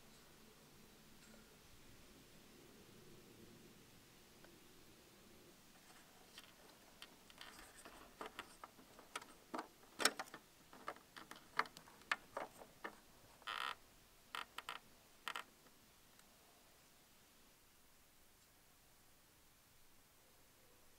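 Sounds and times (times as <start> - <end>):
plastic clicks and rattles: 5.8 - 13.7.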